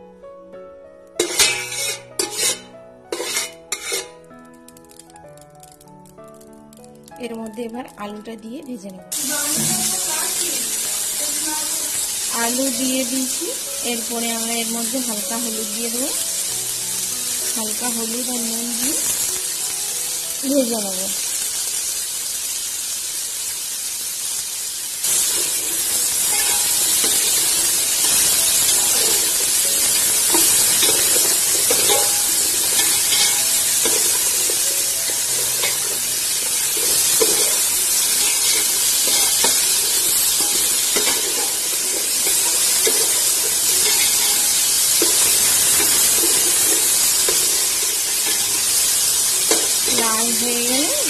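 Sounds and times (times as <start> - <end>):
potatoes sizzling in oil: 1.1 - 51.0
spatula scraping a metal pot: 1.2 - 4.2.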